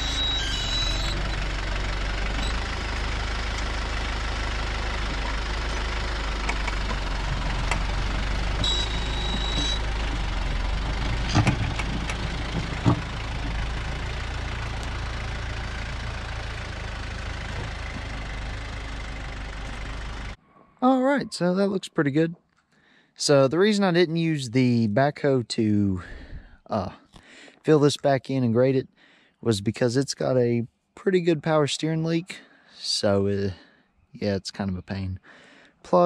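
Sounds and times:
tractor diesel engine running: 0:00.0 - 0:20.4
sharp clunks: 0:11.2 - 0:13.6.

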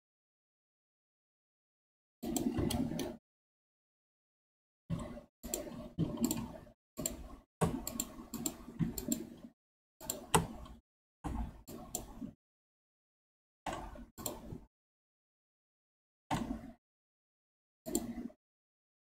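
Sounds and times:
mouse and keyboard clicks: 0:04.9 - 0:09.4, 0:10.0 - 0:12.3, 0:13.7 - 0:14.6, 0:17.9 - 0:18.3.

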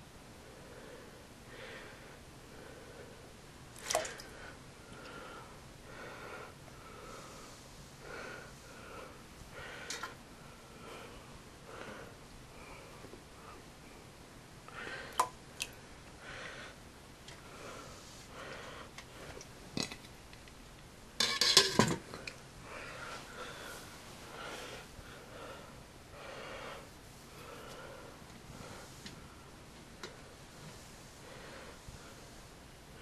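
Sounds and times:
soft breathing: 0:00.4 - 0:19.6, 0:22.1 - 0:33.0
metal pot clicks and knocks: 0:21.2 - 0:22.0.

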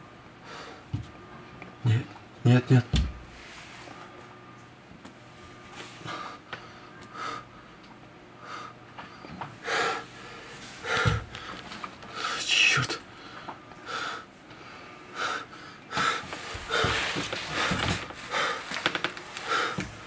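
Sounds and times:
man breathing hard: 0:00.4 - 0:00.9, 0:06.0 - 0:07.7, 0:08.4 - 0:18.8, 0:19.4 - 0:20.0
man muttering: 0:12.4 - 0:13.0.

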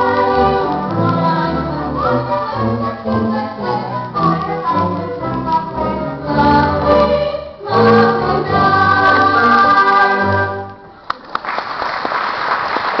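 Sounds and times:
ensemble singing with accompaniment: 0:00.0 - 0:10.9
audience applause: 0:11.0 - 0:13.0.

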